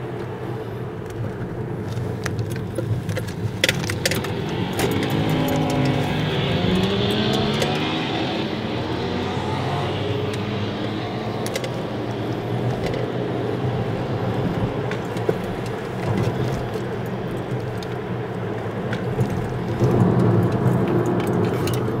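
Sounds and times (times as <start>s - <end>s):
car engine and road noise: 0.0s - 22.0s
motorcycle engines revving: 3.6s - 17.6s.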